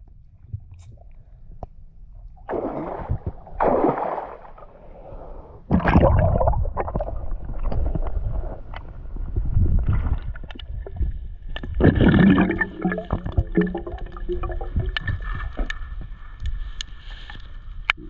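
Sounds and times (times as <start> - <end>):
underwater low rumble with clicks: 0.0 - 3.7, 5.7 - 18.0
water splashing and sloshing: 2.2 - 17.9
gurgling bubbles: 2.5 - 15.7.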